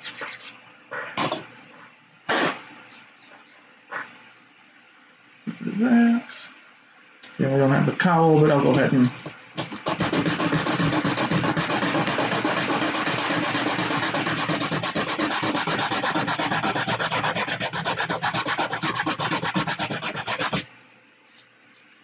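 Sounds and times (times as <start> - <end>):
plastic sanding on sandpaper: 0.0 - 0.6, 2.8 - 3.6, 9.2 - 20.7.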